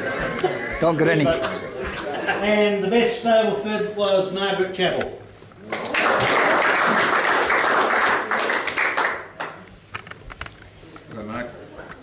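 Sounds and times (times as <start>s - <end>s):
people applauding: 5.6s - 9.7s.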